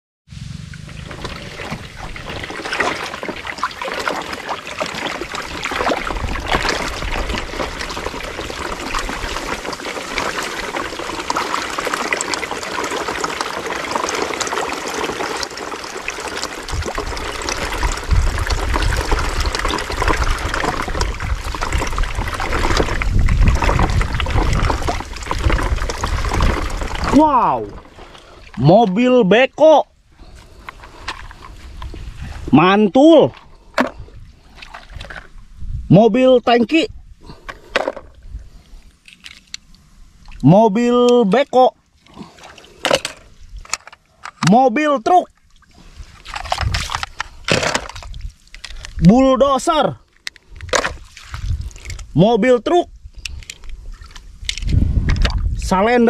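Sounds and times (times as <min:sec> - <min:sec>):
low rumble: 0:00.3 - 0:02.7
water trickling and splashing: 0:00.6 - 0:35.8, 0:36.5 - 0:56.0.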